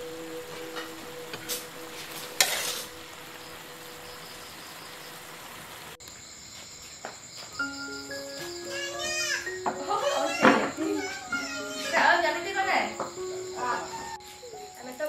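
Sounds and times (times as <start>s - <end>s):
food sizzling in a wok: 0.0s - 6.0s
crickets chirring: 0.0s - 15.0s.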